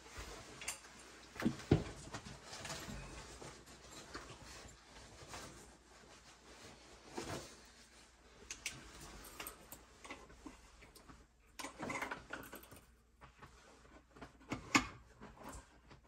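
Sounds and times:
cloth rustling: 2.0s - 11.3s.

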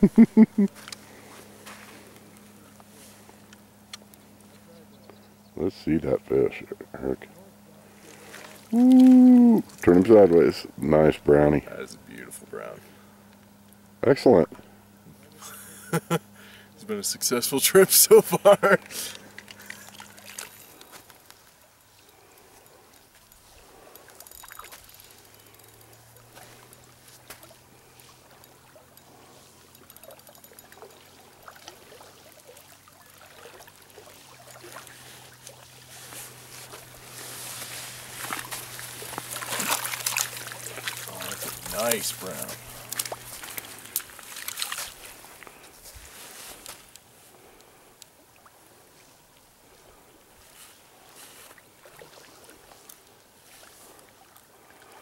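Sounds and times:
small waves lapping: 7.4s - 10.3s, 16.3s - 55.0s
water sloshing at shore: 7.5s - 10.5s, 16.9s - 55.0s
fish splashing: 18.2s - 20.9s, 23.6s - 45.4s, 51.7s - 53.1s.

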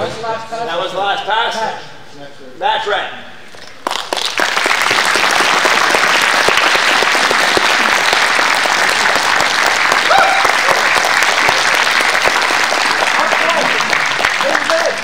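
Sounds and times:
crowd clapping: 3.6s - 15.0s.

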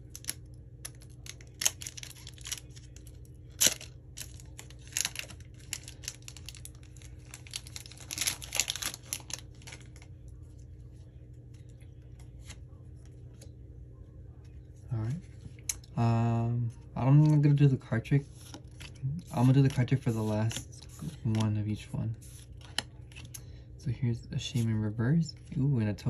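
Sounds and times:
foil wrapper crinkling and tearing: 0.0s - 10.1s.

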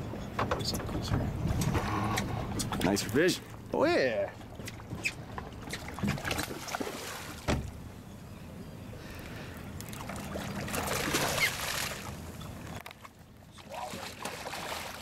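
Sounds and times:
fish thrashing and splashing: 9.9s - 12.2s, 13.8s - 15.0s.

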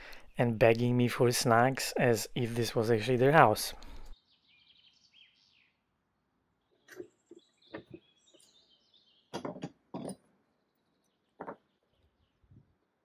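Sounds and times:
small birds chirping: 2.2s - 9.4s, 10.5s - 12.7s
knocks and clicks of wooden parts: 6.8s - 8.0s, 9.3s - 10.3s, 11.4s - 11.7s.

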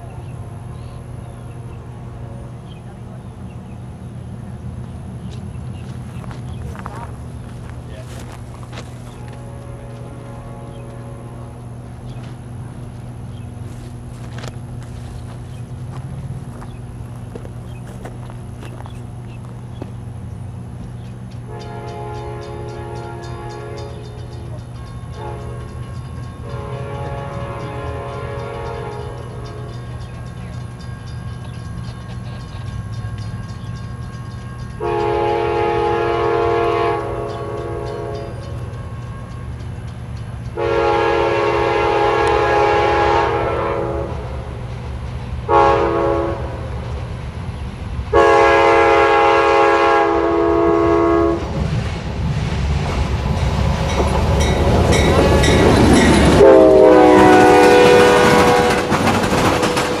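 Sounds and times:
train wheels rumbling on rails: 0.0s - 60.0s
train horn: 0.1s - 2.9s, 9.1s - 11.7s, 21.4s - 29.9s, 34.8s - 39.4s, 40.5s - 44.5s, 45.5s - 46.8s, 48.1s - 51.6s, 54.9s - 60.0s.

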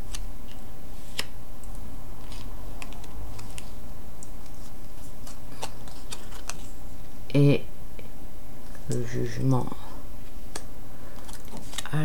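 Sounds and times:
cards clicking and flicking: 0.0s - 6.7s, 10.4s - 11.9s
steady low hum: 0.0s - 12.0s.

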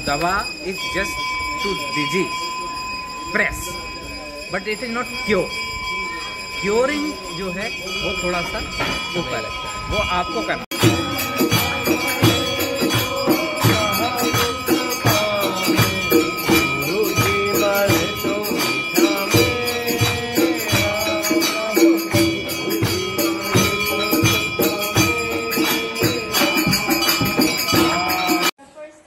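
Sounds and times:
bright continuous ringing: 0.0s - 28.6s
rhythmic hand-clapping: 10.7s - 28.5s
people singing devotional song: 10.8s - 28.5s.

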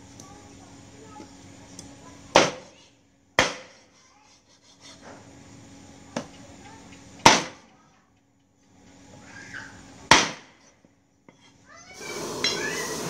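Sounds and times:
cleaver chopping fish on wood: 2.4s - 2.6s, 3.4s - 3.8s, 7.2s - 7.6s, 10.1s - 10.4s.

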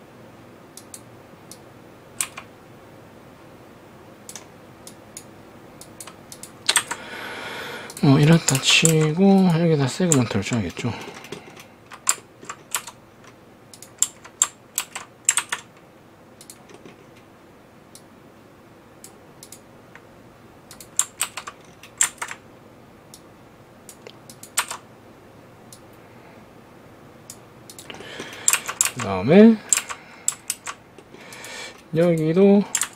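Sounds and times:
computer keyboard typing: 2.2s - 2.5s, 5.8s - 7.0s, 7.9s - 15.7s, 20.7s - 22.4s, 24.3s - 24.8s, 27.7s - 30.8s.

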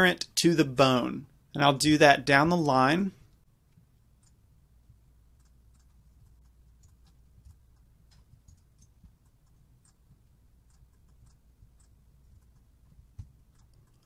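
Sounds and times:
low steady hum: 0.0s - 14.0s
mouse and keyboard clicks: 5.3s - 14.0s.

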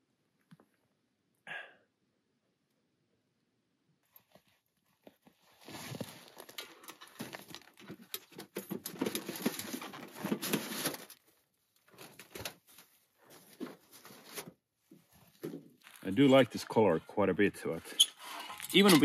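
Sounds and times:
metal pipe scraping and clicking: 17.8s - 19.0s.

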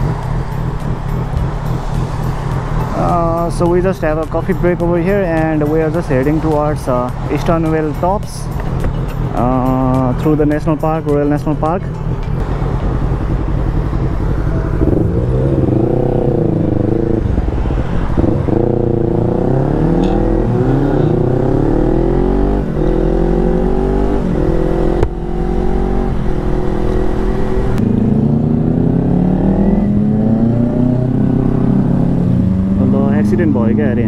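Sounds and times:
motorcycle engine accelerating: 0.0s - 4.2s, 7.1s - 34.0s.

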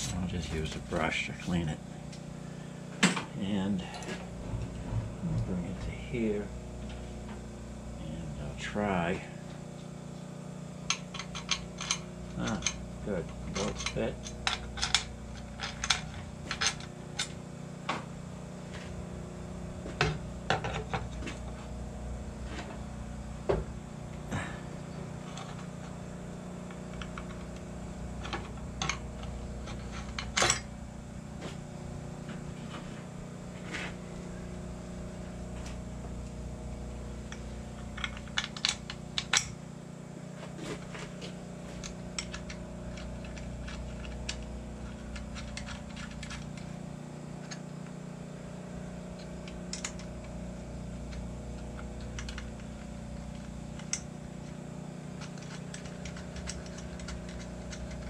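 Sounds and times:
low machine hum: 0.0s - 58.0s
metal parts clinking: 11.1s - 12.8s, 13.5s - 17.3s, 55.2s - 58.0s.

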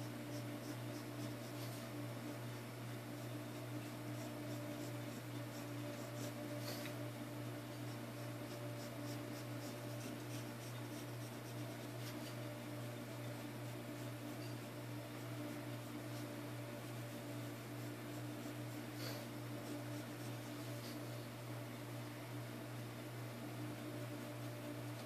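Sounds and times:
pencil scratching on paper: 0.0s - 21.1s
low electrical hum: 0.0s - 25.0s.

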